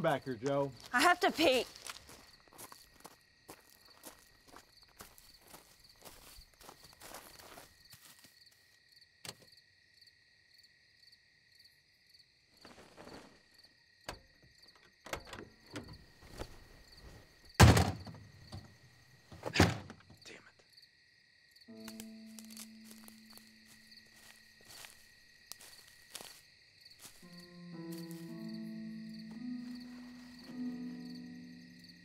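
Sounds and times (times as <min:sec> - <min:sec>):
crickets chirping: 0:00.0 - 0:32.0
loud thuds: 0:17.6 - 0:18.3.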